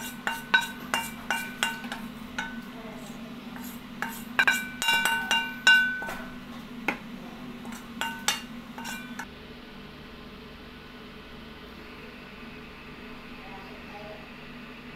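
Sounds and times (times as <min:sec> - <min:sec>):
wooden spatula knocking on wok: 0:00.0 - 0:02.8, 0:03.6 - 0:09.2.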